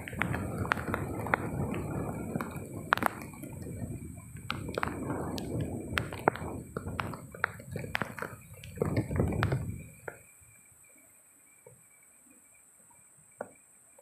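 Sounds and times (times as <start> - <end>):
raindrops tapping near microphone: 0.0 - 10.6
rain rushing: 0.0 - 10.9
wind: 0.0 - 14.0.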